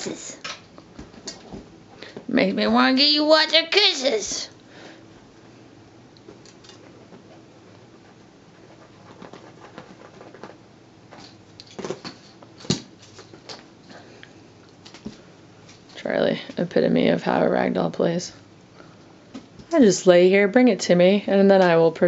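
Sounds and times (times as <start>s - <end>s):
paws patting feathers on cushions: 6.3s - 13.5s.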